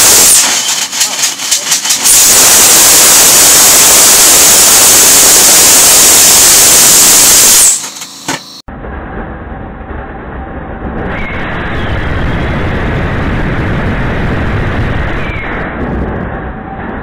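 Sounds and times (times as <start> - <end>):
engine burning rushing sound: 0.0 - 7.8, 8.6 - 17.0
rocket engine exhaust hissing: 0.0 - 8.7.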